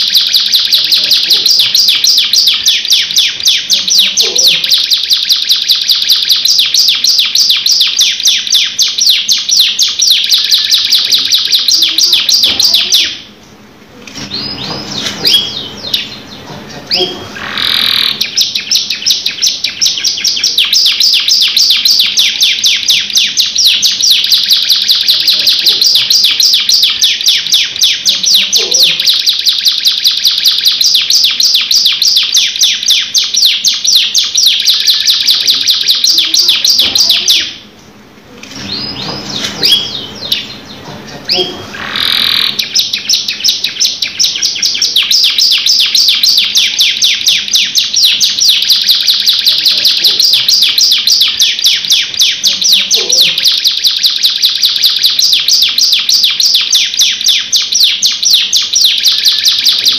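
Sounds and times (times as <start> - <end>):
canary singing trills: 0.0 - 59.9.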